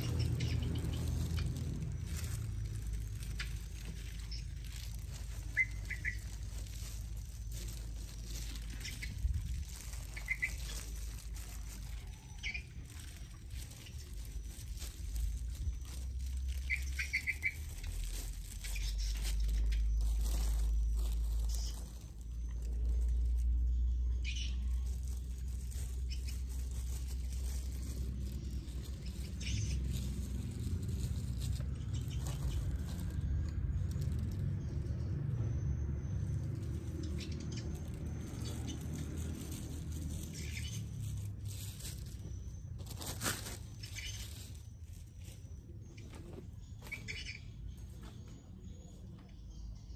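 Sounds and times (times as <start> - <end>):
plastic bag crinkling: 0.0 - 35.4, 36.1 - 47.0
steady low rumble: 0.0 - 45.8
hands rustling in soil: 0.0 - 47.2
small bird chirping: 0.0 - 49.9.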